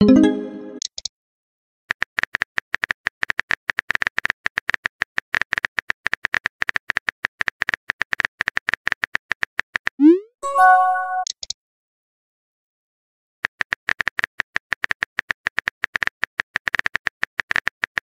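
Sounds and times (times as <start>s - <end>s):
chiming tone: 0.0s - 0.8s, 10.4s - 11.3s
rapid keyboard key clicks: 13.5s - 18.0s.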